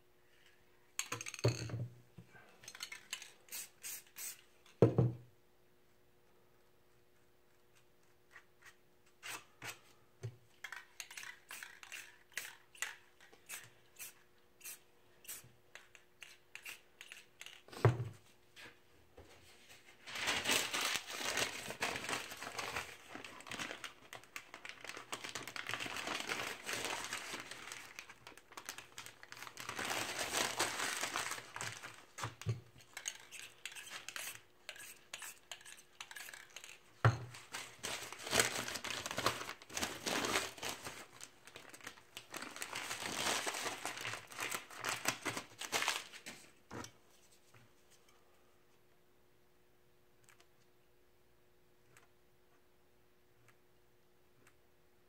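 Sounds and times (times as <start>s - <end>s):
spray paint can hissing: 3.5s - 4.4s.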